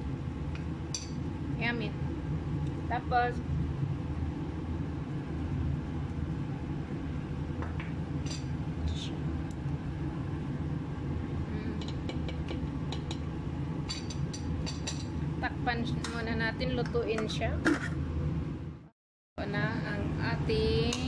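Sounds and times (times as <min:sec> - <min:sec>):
low kitchen hum: 0:00.0 - 0:21.0.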